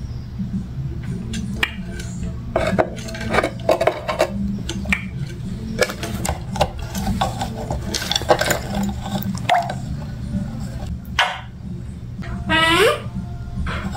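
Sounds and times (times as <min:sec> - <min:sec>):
parrot squeaking: 0:12.2 - 0:13.2.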